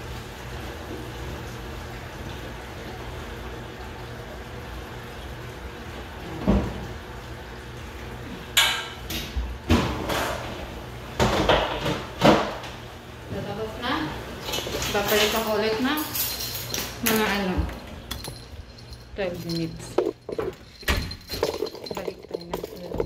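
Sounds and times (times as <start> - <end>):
knocks and clatters from washing machine: 6.2 - 7.0, 8.6 - 13.5, 20.0 - 23.0.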